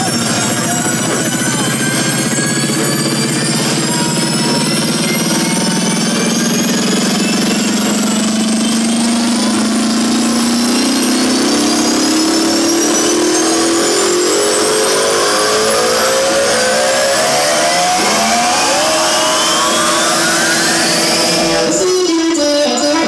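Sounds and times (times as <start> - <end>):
synth riser climbing in pitch: 0.0 - 22.1.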